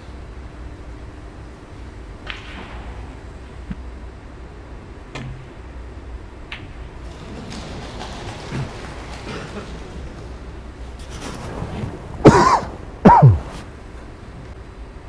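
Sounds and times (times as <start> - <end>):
low arena hum: 0.0 - 15.0
snooker balls clicking: 6.5 - 10.8.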